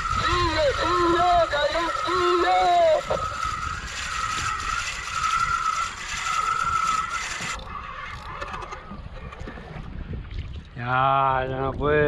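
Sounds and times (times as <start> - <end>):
fishing reel whining: 0.0 - 9.5.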